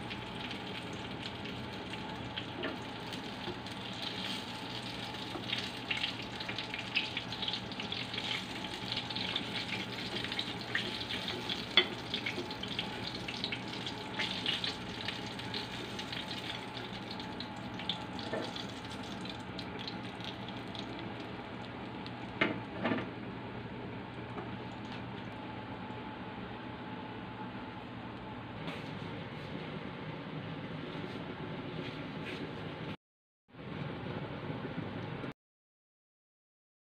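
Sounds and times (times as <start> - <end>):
meat sizzling in a frying pan: 0.0 - 20.0
oil popping: 0.2 - 22.7.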